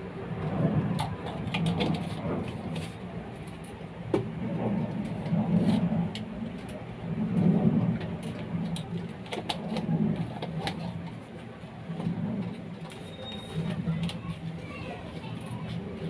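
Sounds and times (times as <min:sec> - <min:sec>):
low mechanical rumble: 0:00.0 - 0:16.0.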